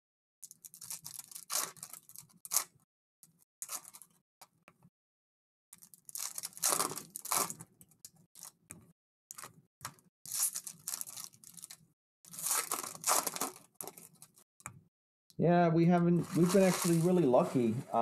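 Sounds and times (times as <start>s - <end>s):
foil wrappers tearing and crinkling: 0.4s - 2.8s, 3.6s - 4.1s, 5.8s - 7.7s, 10.3s - 14.4s, 16.2s - 17.2s
packs rustling: 5.8s - 7.6s, 10.4s - 14.4s, 16.2s - 17.4s.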